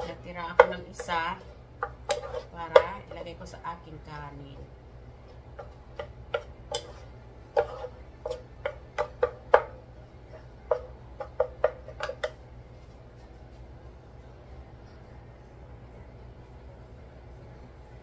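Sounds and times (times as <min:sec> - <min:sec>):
spatulas knocking on a skillet: 0:00.0 - 0:03.4, 0:05.6 - 0:12.4.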